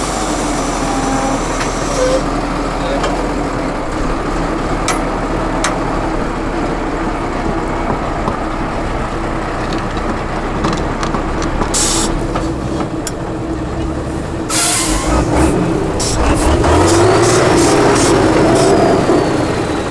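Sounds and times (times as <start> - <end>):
truck diesel engine under load: 0.0 - 19.9
sharp knocks: 4.8 - 5.8.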